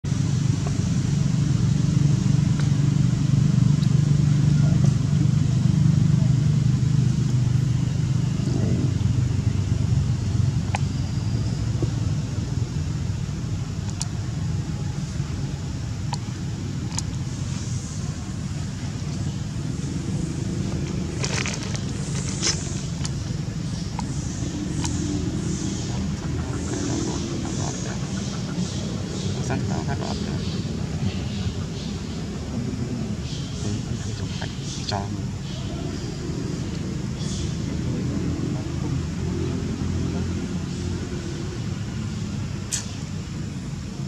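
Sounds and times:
low engine drone: 0:00.0 - 0:44.0
low outdoor rumble: 0:00.0 - 0:44.0
dry leaves crackling: 0:20.0 - 0:23.4.

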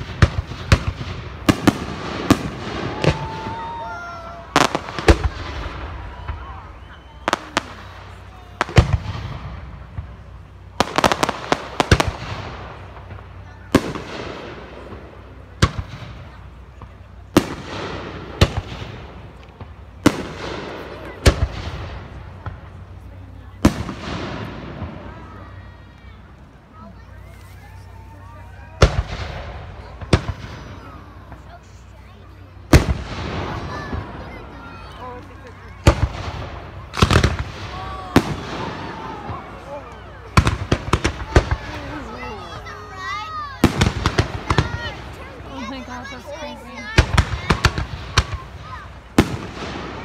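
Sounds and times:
firework whistling: 0:00.0 - 0:14.6
fireworks bursting in sharp bangs: 0:00.0 - 0:25.9, 0:28.6 - 0:50.0.

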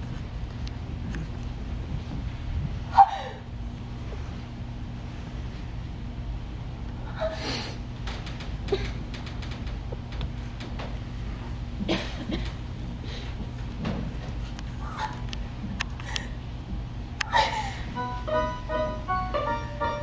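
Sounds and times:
low hall hum: 0:00.0 - 0:20.0
light clicks and knocks: 0:08.0 - 0:11.0.

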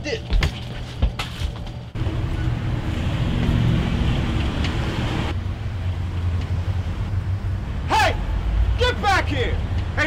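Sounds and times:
street traffic: 0:01.6 - 0:10.0.

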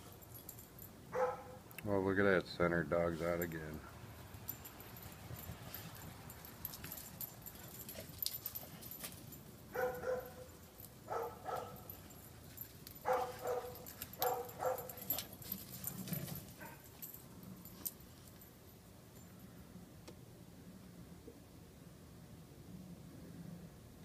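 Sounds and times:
dogs barking: 0:01.1 - 0:01.6, 0:09.7 - 0:10.5, 0:11.1 - 0:11.9, 0:13.0 - 0:15.2.

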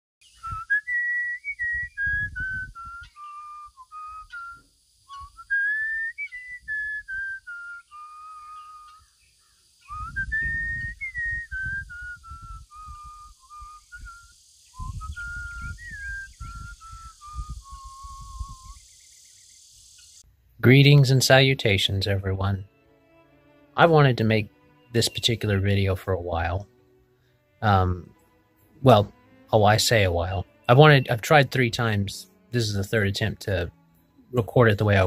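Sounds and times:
person whistling tune: 0:00.2 - 0:09.1, 0:09.8 - 0:18.8.

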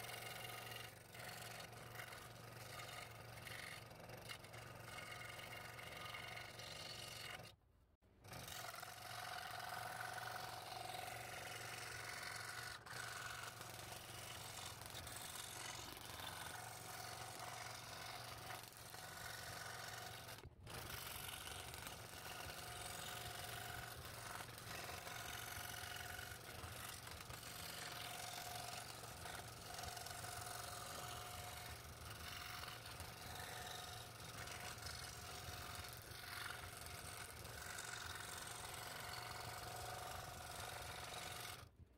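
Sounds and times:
scroll saw cutting wood: 0:00.0 - 0:41.8.

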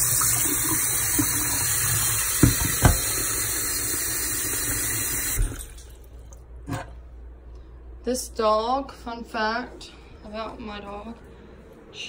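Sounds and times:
tap water running into steel sink: 0:00.0 - 0:06.0.

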